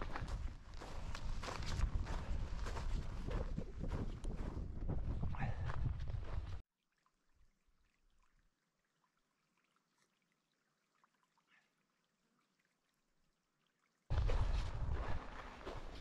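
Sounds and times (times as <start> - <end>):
wind rushing on microphone: 0.0 - 6.6.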